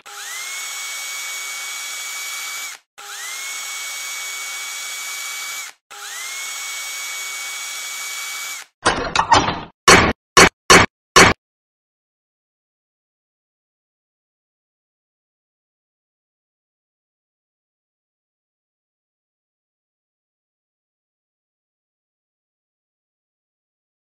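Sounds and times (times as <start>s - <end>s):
small motor whirring: 0.0s - 8.8s.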